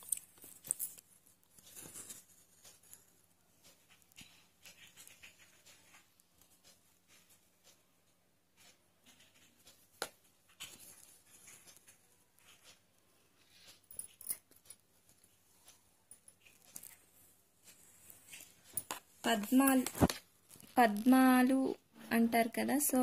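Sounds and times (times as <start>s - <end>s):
cloth rustling: 13.5s - 21.1s.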